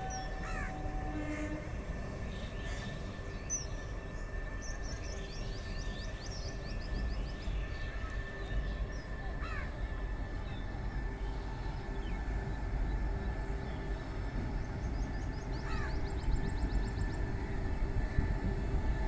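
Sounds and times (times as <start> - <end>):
train rumbling past: 0.0 - 19.0.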